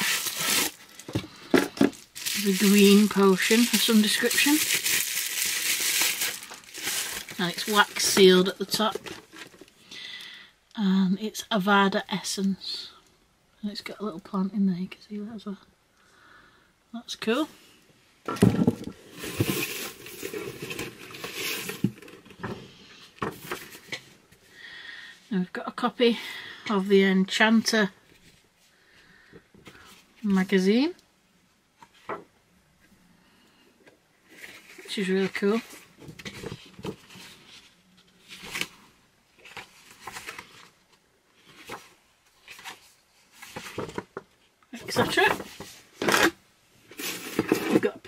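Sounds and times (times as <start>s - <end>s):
paper and packaging rustling: 0.0s - 9.8s, 18.6s - 22.5s, 34.3s - 46.3s, 46.9s - 48.0s.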